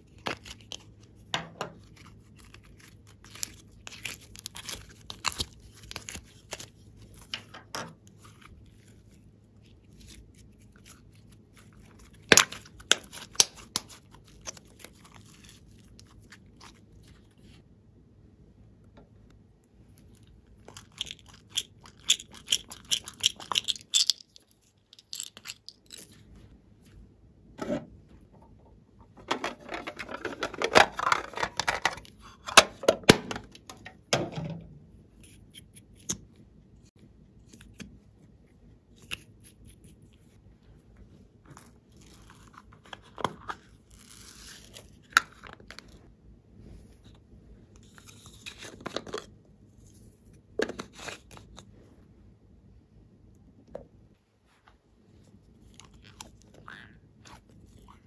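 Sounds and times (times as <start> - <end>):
beads clicking and rattling: 20.7 - 26.2
squishy toy squeezed: 55.7 - 58.0.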